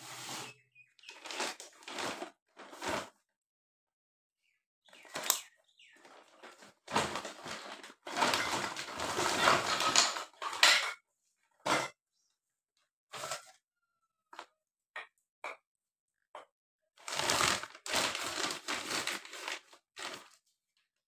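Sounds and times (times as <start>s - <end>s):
paper bag and plastic rustling: 0.0s - 3.1s, 6.0s - 10.8s, 17.0s - 20.5s.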